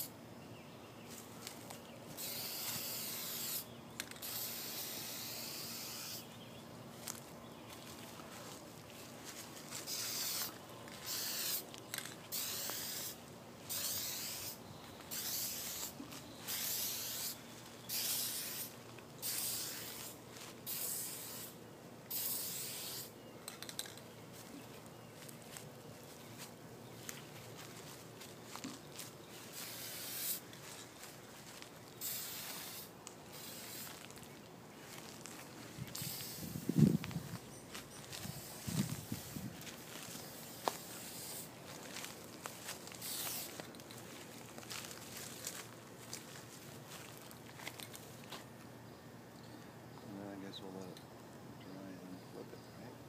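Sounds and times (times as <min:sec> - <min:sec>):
aerosol spray hissing bursts: 0:02.2 - 0:06.3, 0:09.8 - 0:11.6, 0:12.3 - 0:23.1, 0:29.5 - 0:30.4, 0:32.0 - 0:34.0, 0:35.9 - 0:36.7, 0:40.3 - 0:41.5, 0:43.0 - 0:43.6.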